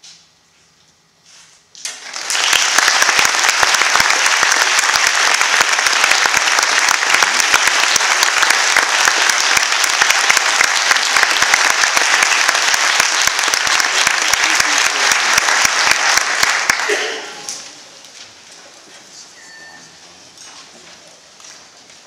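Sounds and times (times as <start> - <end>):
audience applauding: 1.8 - 17.9.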